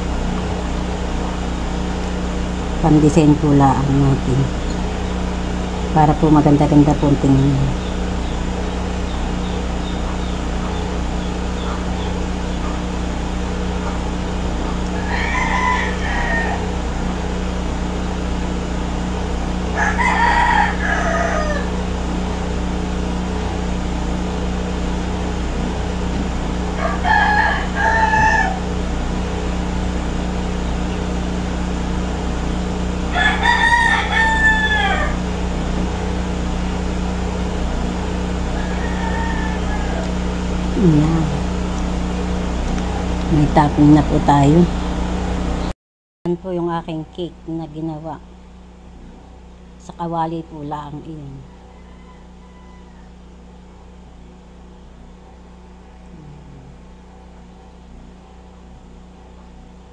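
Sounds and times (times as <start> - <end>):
steady low hum: 0.0 - 59.9
rooster crowing: 14.7 - 17.4, 19.6 - 22.0, 26.6 - 28.9, 33.0 - 35.8, 38.2 - 40.6, 51.3 - 53.7.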